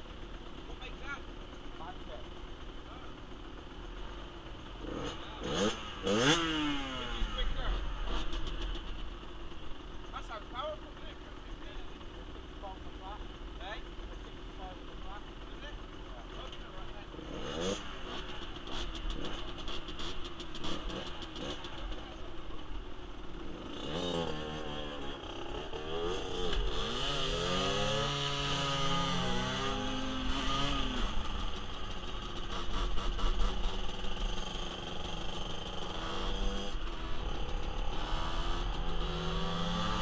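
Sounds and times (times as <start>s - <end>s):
small motorcycle engine revving: 4.0s - 9.2s, 14.5s - 40.0s.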